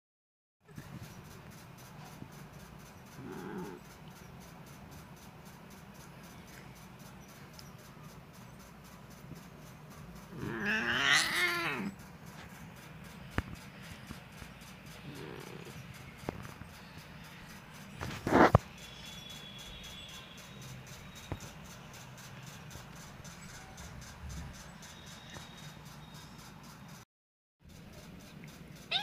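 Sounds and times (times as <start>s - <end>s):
cat meowing: 10.3s - 11.9s.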